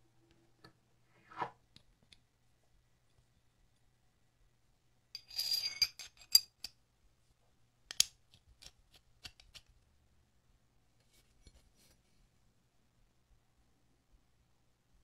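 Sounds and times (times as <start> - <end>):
metal wrench scraping with ring: 5.2 - 6.6.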